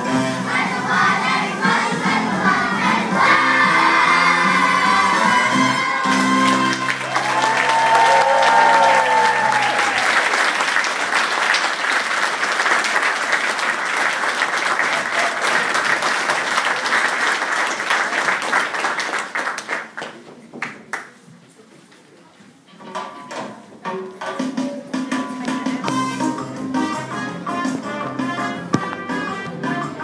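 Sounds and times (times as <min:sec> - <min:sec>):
held chord of children's song: 0:00.0 - 0:06.8
audience applauding: 0:05.9 - 0:20.2.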